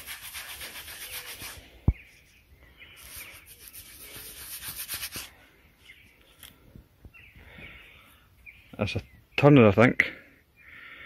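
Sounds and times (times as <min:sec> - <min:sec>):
fingers rubbing soil off coin: 0:00.0 - 0:05.3.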